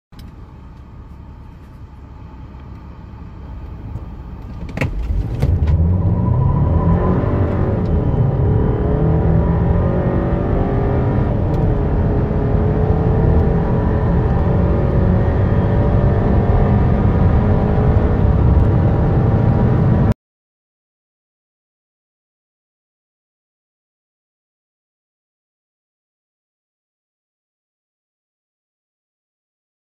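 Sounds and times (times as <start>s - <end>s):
car engine accelerating: 0.2s - 20.2s.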